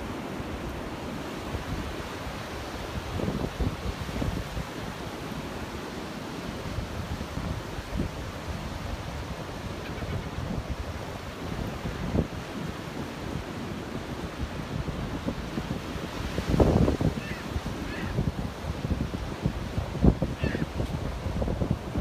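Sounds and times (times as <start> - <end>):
ocean surf breaking: 0.0 - 22.0
wind buffeting microphone: 1.4 - 5.1, 14.3 - 22.0.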